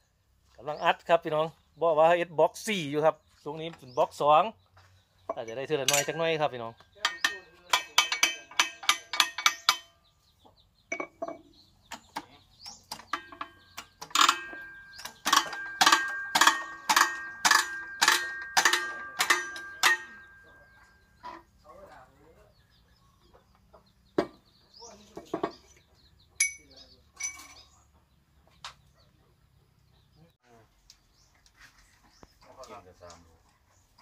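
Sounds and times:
metal press clanking: 0:05.3 - 0:10.1, 0:12.9 - 0:21.5.

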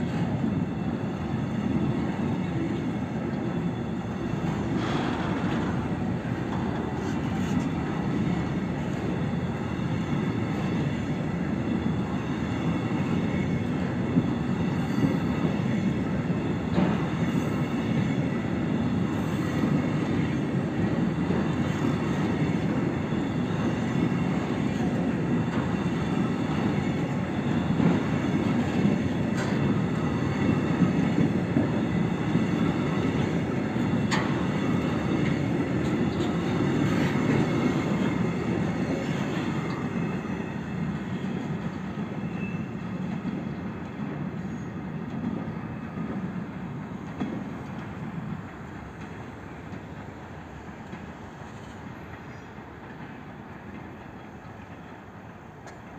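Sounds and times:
freight train wheels rumbling: 0:00.0 - 0:55.9
sharp clicks of wheels on rails: 0:26.6 - 0:40.1.

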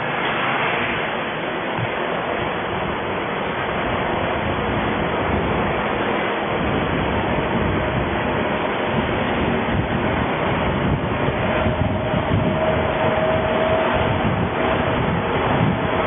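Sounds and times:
engine running low: 0:00.0 - 0:16.0
road and wind noise: 0:00.0 - 0:16.0.

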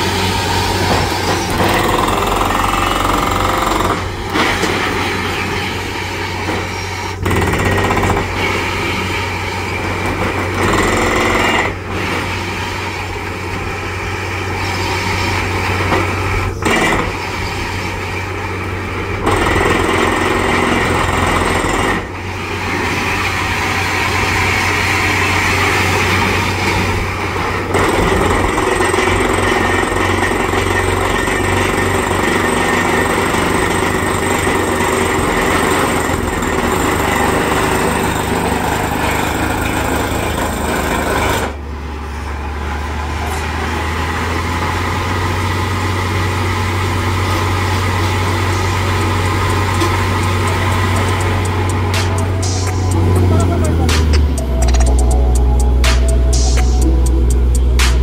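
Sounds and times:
air hammer pounding: 0:00.0 - 0:05.2, 0:06.4 - 0:08.9, 0:48.2 - 0:55.0
drilling rig engine and compressor: 0:00.0 - 0:58.0.

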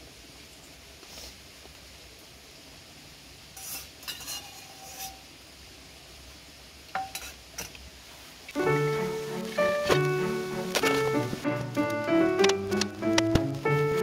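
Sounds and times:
faint hiss: 0:00.0 - 0:14.0
cutlery clinking against bowls: 0:03.6 - 0:05.2, 0:07.0 - 0:07.7.

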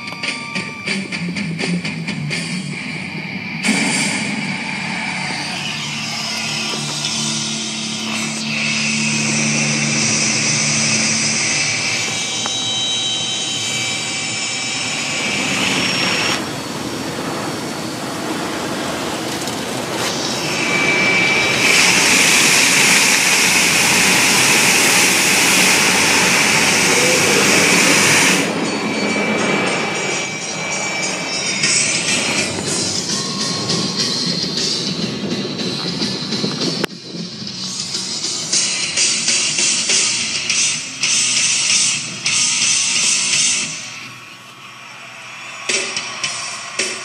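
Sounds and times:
car wash spray and brushes: 0:04.9 - 0:36.6.

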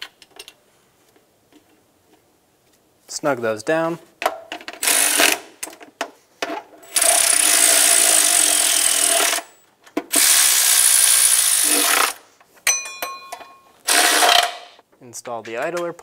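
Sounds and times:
electric ratchet whining: 0:06.9 - 0:12.2, 0:13.9 - 0:14.6.

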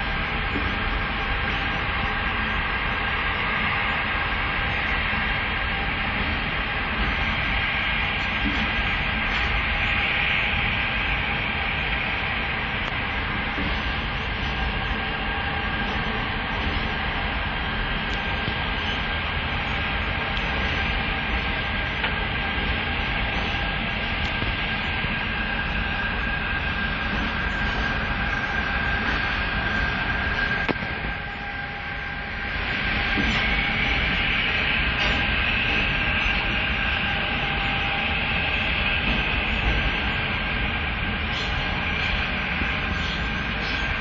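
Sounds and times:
electric train rumble: 0:00.0 - 0:44.0
high electric whine: 0:00.0 - 0:44.0.

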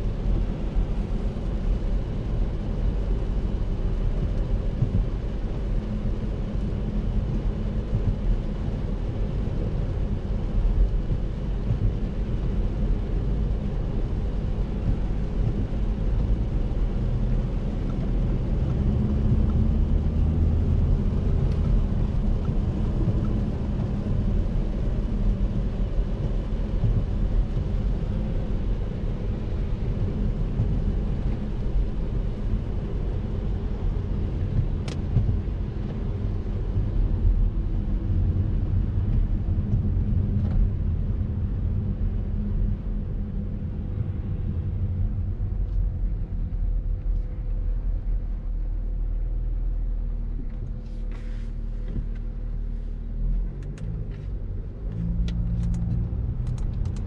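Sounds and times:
car engine and tyre rumble: 0:00.0 - 0:57.0
light ticks: 0:34.6 - 0:36.1, 0:54.9 - 0:57.0
tyre hiss on wet road: 0:50.8 - 0:51.8.

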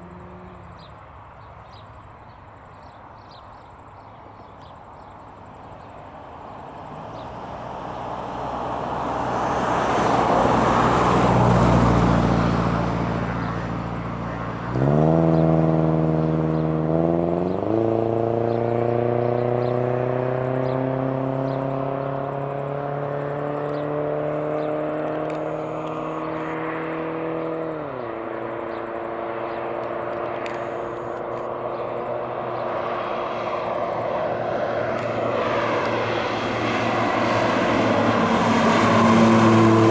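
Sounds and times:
turboprop plane engine and propeller: 0:24.6 - 0:26.7, 0:28.0 - 0:39.9.

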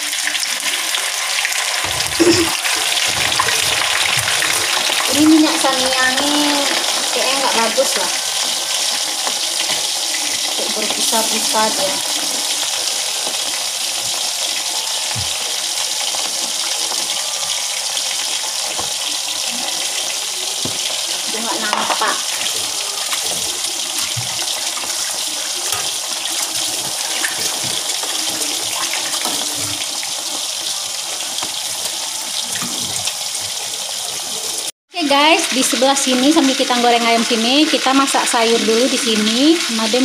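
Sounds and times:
chicken deep-frying in oil: 0:00.0 - 0:40.0.

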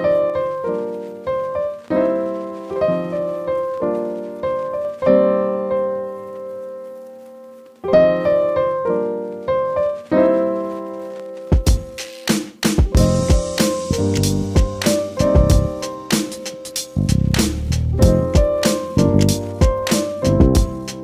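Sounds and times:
piano chords ringing: 0:00.0 - 0:12.0, 0:12.9 - 0:21.0.

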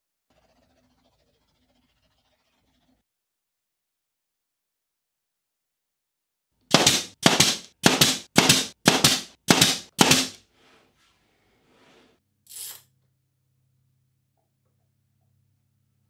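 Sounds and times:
nail gun firing into wood: 0:06.7 - 0:10.4.

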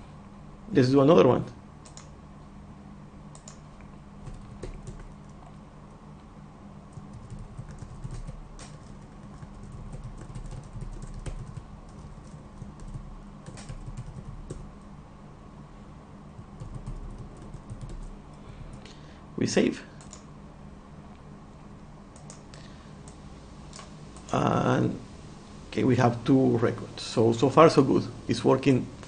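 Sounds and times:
faint low hum: 0:00.0 - 0:29.0
typing on computer keyboard: 0:01.8 - 0:02.1, 0:04.2 - 0:05.4, 0:06.9 - 0:14.7, 0:16.4 - 0:18.1, 0:20.0 - 0:20.2.

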